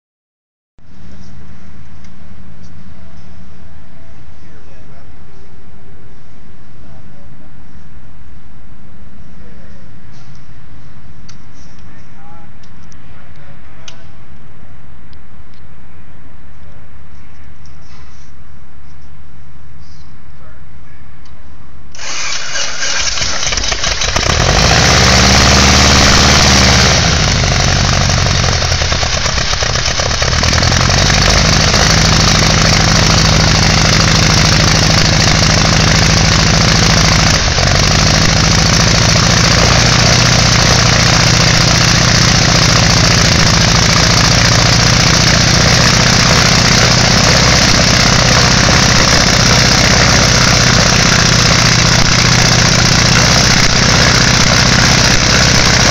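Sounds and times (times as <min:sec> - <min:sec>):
aircraft engine starting and running: 0:21.9 - 0:55.9.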